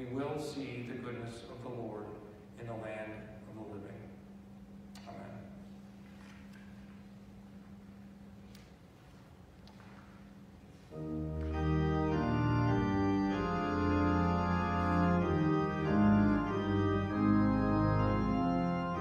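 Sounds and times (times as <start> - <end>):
organ sustained chords: 10.7 - 19.0.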